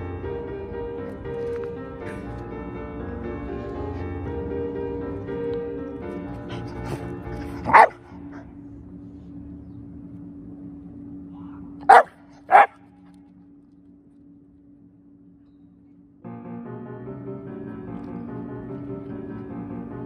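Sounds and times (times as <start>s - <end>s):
soft background music: 0.0s - 20.0s
dog barking: 7.6s - 8.0s, 11.9s - 12.8s.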